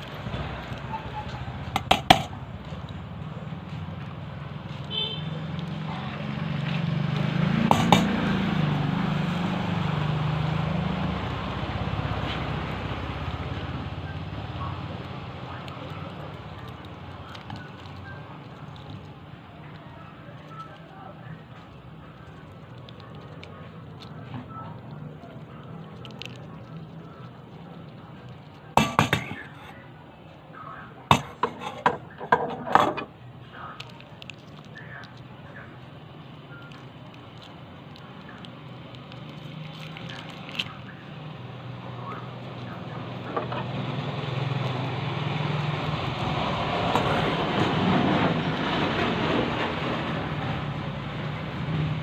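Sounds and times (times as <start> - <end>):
vehicle engine humming: 0.0 - 52.0
foil wrapper crinkling: 14.8 - 29.5, 33.7 - 41.0.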